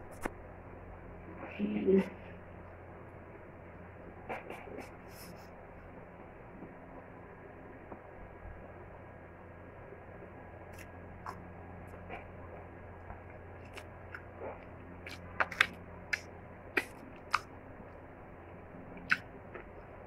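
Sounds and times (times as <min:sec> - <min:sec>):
faint low hum: 0:00.0 - 0:20.0
crab shell cracking: 0:15.1 - 0:17.5.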